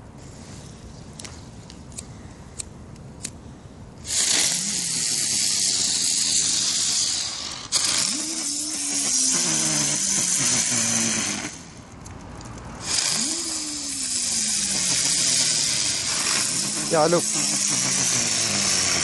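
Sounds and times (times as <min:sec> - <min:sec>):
fireworks hissing: 0:04.0 - 0:11.8, 0:12.8 - 0:19.0
firework crack: 0:04.0 - 0:11.9, 0:12.8 - 0:19.0.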